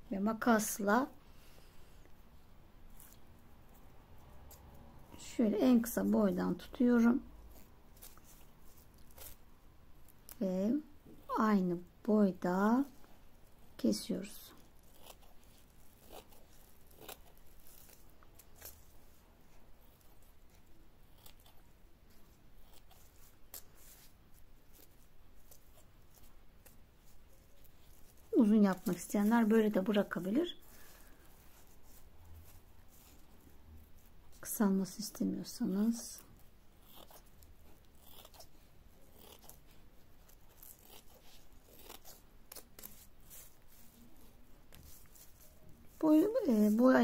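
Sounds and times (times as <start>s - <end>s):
scissors snipping fabric: 14.1s - 19.0s, 19.8s - 31.7s, 35.7s - 43.9s.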